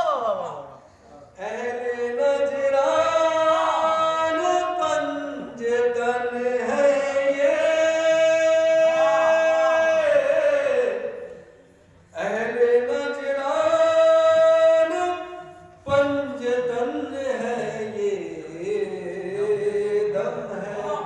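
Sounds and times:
man chanting: 0.0s - 11.5s, 12.1s - 21.0s.

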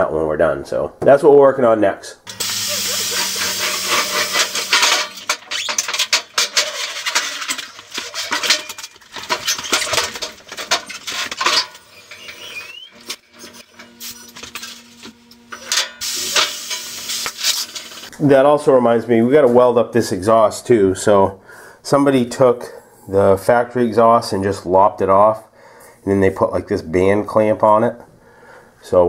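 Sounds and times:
air hissing: 2.3s - 6.0s, 15.6s - 18.1s
metal clanking and clicking: 2.3s - 18.1s.

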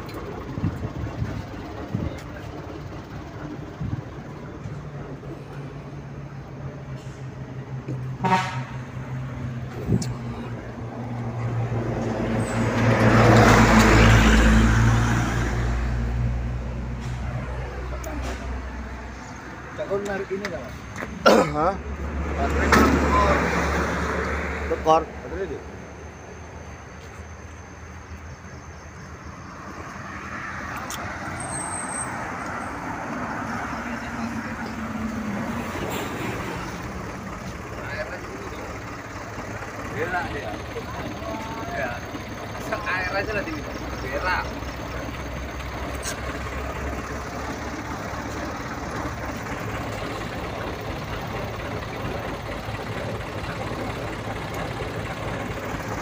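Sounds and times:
truck diesel engine passing: 0.0s - 56.0s
short horn toot: 8.2s - 8.8s.

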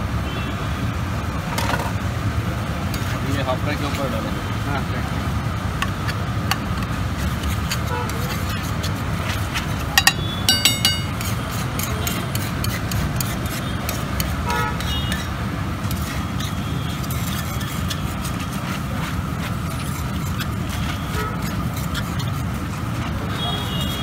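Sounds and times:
street traffic hum: 0.0s - 24.0s
spatula scraping on iron griddle: 5.8s - 24.0s.

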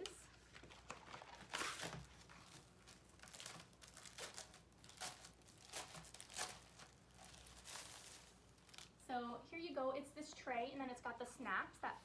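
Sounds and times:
packaging crinkling: 0.0s - 9.0s.

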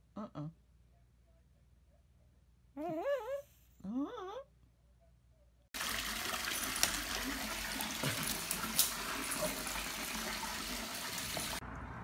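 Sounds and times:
running water: 5.8s - 11.6s.

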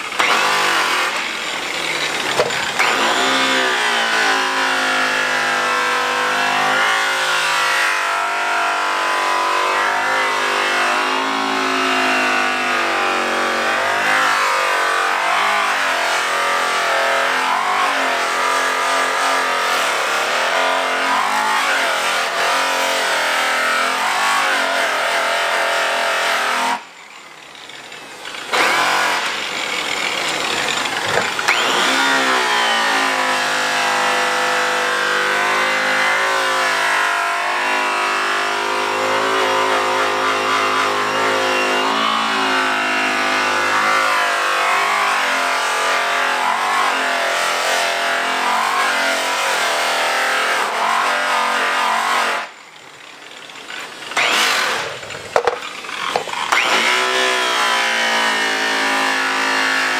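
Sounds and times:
rotary buffer motor whine: 0.0s - 20.0s, 26.8s - 46.5s, 52.5s - 59.8s.

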